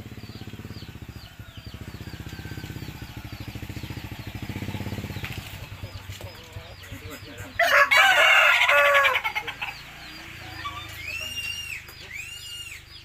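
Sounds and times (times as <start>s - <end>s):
rooster crowing: 7.6s - 9.4s.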